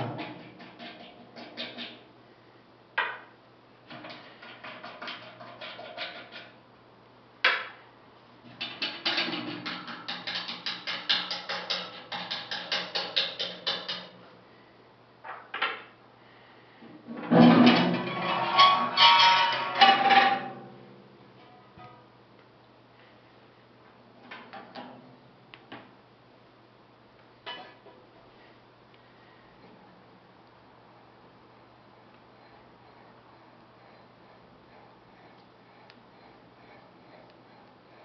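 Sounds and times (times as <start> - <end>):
metal clattering and scraping: 17.0 - 20.8.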